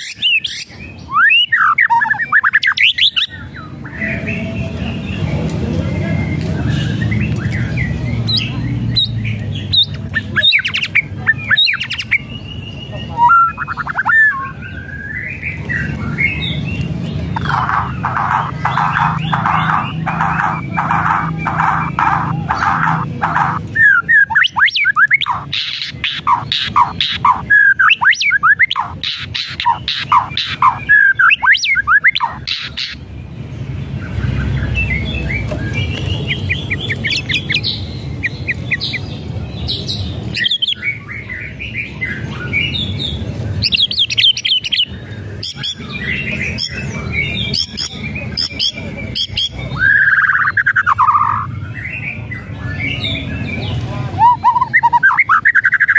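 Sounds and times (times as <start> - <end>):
bird singing whistled phrases: 0.0 - 4.4, 6.2 - 16.8, 17.4 - 32.7, 43.6 - 55.9
bird harsh rattling calls: 17.3 - 33.0.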